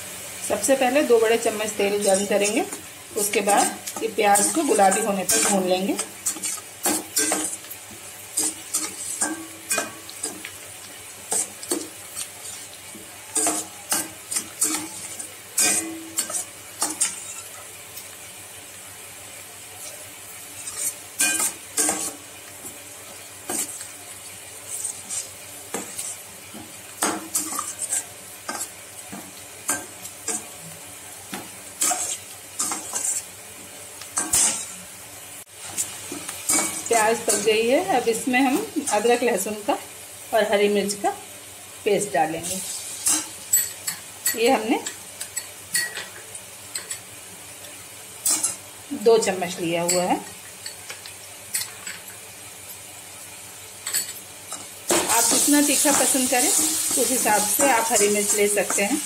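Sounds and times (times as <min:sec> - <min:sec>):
onions sizzling in oil: 0:00.0 - 0:59.0
metal spatula scraping pan: 0:01.8 - 0:07.7, 0:13.4 - 0:17.6, 0:20.6 - 0:22.2, 0:24.7 - 0:28.8, 0:31.8 - 0:33.3, 0:34.2 - 0:34.8.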